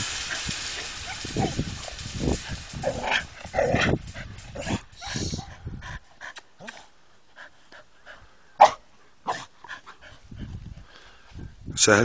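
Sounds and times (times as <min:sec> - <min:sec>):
hiss-like noise: 0:00.0 - 0:10.1
dog barking: 0:08.6 - 0:09.4.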